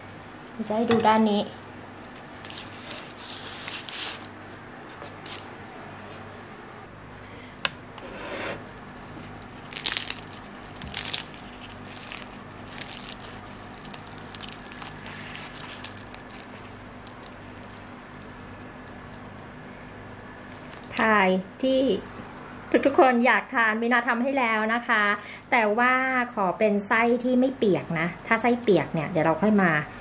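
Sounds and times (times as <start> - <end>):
faint steady hum: 0.0 - 30.0
pastry crust crackling and crunching: 2.0 - 4.4, 8.6 - 19.6, 20.4 - 21.2.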